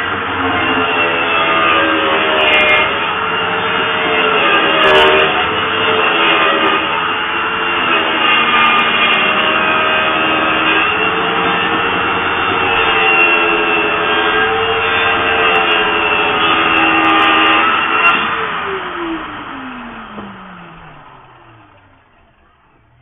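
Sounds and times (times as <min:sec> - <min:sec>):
circular saw cutting: 0:00.0 - 0:23.0.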